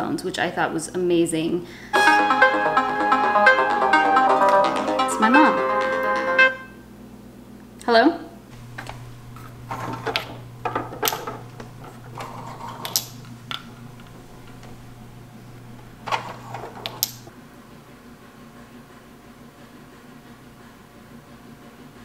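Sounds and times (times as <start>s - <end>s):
steady low hum: 8.4s - 17.3s
window blind slats clattering: 8.6s - 17.3s.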